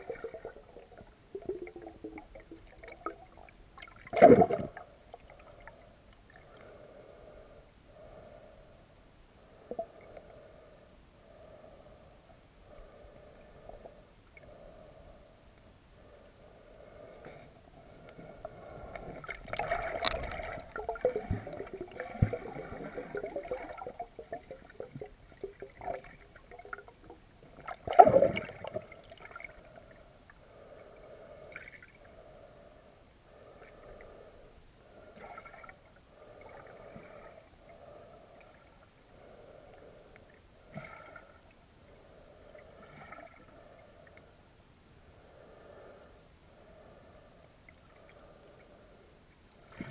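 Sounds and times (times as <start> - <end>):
river water gurgling underwater: 0.0 - 4.9, 19.0 - 29.6
soft water swells: 0.0 - 49.9.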